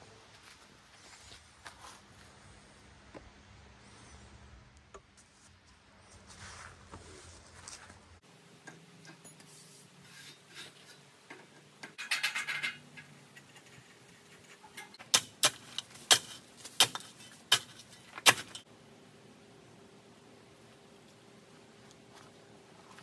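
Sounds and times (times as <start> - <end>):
loose metal hardware rattling: 11.5 - 18.6.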